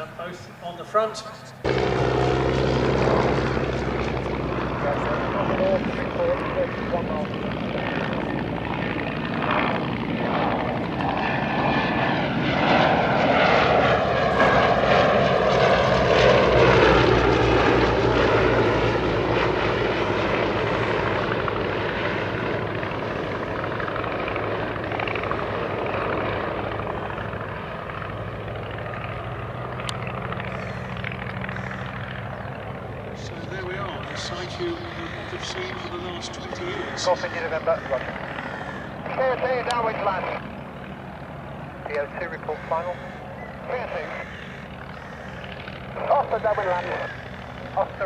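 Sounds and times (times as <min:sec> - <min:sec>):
propeller planes flying past: 0:00.0 - 0:48.0.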